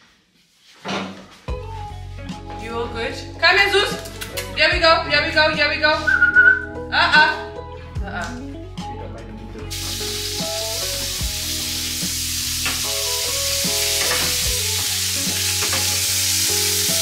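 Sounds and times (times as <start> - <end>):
background music with a beat: 1.5 - 2.7, 3.9 - 5.0, 6.0 - 17.0
food sizzling in a frying pan: 9.7 - 17.0.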